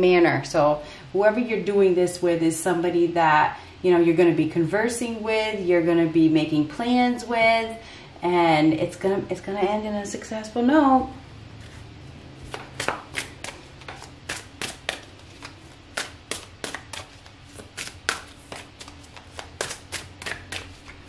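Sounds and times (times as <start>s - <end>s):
cards being shuffled: 12.5s - 21.0s.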